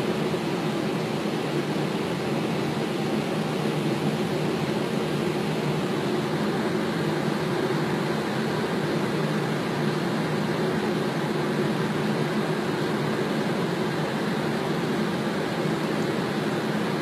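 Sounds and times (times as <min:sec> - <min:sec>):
airliner engines running: 0:00.0 - 0:17.0.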